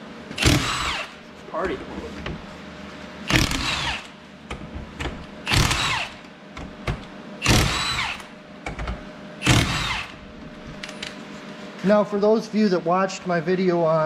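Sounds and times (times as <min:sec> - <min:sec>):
impact wrench whining: 0:00.3 - 0:01.2, 0:03.2 - 0:10.8.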